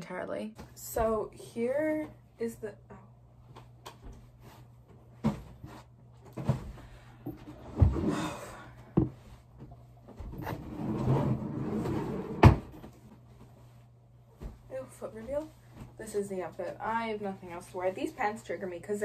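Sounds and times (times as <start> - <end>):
chair knocks and thumps: 5.2 - 8.3, 9.0 - 13.2.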